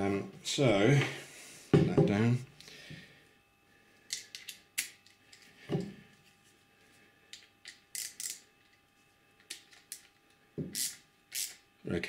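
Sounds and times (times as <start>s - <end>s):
ratchet metal clicks: 7.6s - 8.4s, 10.8s - 11.6s.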